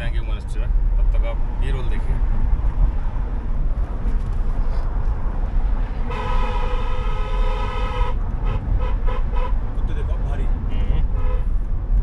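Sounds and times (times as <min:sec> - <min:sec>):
vehicle rumbling on rough road: 0:00.0 - 0:12.0
vehicle horn honking: 0:06.0 - 0:09.6, 0:10.7 - 0:11.6.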